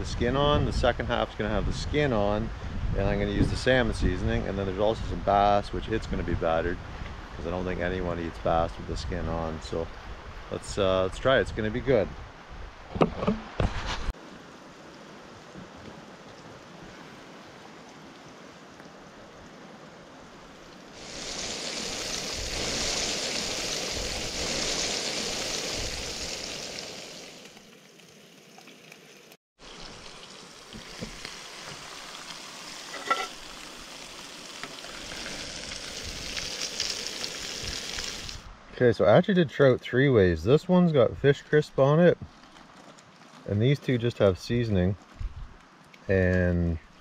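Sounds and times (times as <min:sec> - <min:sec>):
fish fillets sizzling in frying: 0:21.0 - 0:27.5, 0:29.6 - 0:38.4.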